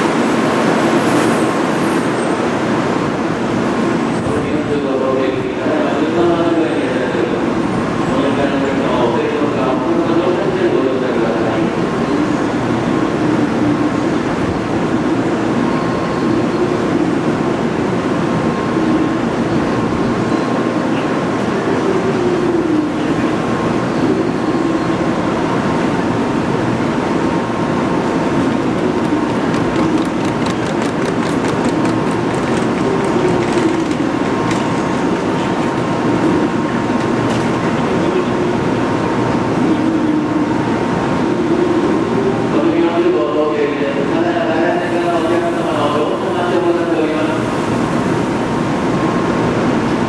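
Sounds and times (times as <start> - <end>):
train equipment hum: 11.2 - 43.1.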